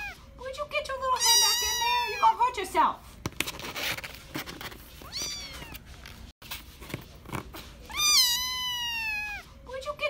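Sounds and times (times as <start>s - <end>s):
kitten meowing: 1.2s - 2.3s, 5.0s - 5.8s, 7.9s - 9.4s.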